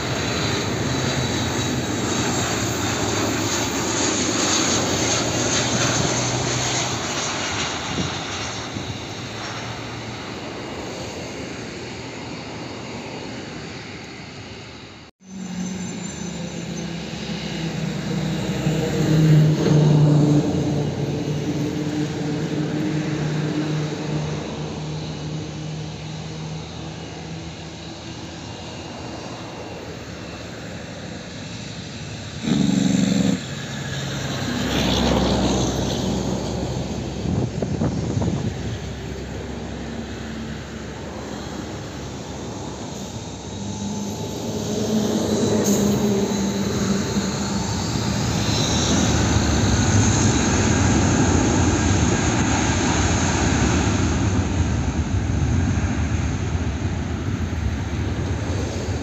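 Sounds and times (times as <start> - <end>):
airliner jet engines running: 0.0 - 59.0
loud burst of noise: 32.4 - 33.9.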